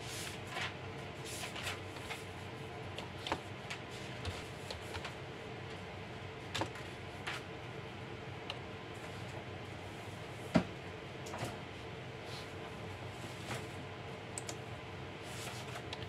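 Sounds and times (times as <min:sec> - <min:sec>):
keyboard keys clicking: 0:14.4 - 0:14.6.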